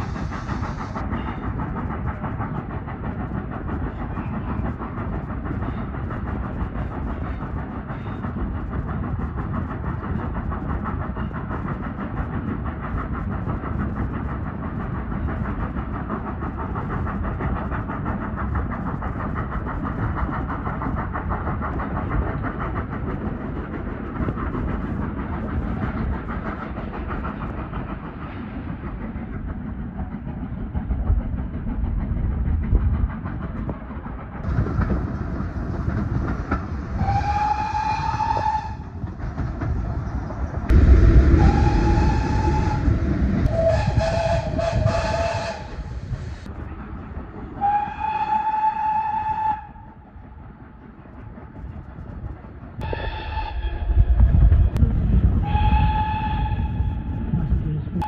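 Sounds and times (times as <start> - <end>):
steam train clattering: 0.0 - 58.0
steam locomotive whistle: 37.0 - 38.9, 41.3 - 45.9, 47.6 - 49.9, 52.8 - 54.1, 55.4 - 57.1.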